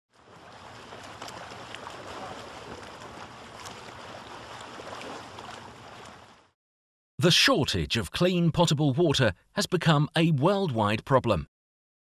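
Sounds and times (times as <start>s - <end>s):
running splashing water: 0.1s - 6.5s.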